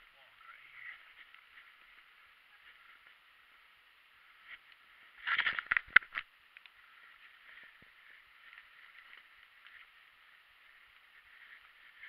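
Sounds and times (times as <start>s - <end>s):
faint steady hiss: 0.0s - 12.0s
soft ticks: 6.0s - 6.8s.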